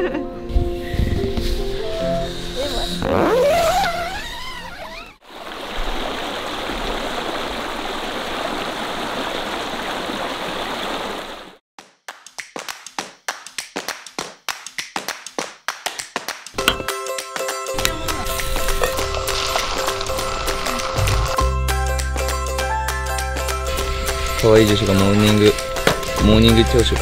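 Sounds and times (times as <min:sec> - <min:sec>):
stream rushing over rocks: 0:05.2 - 0:11.6.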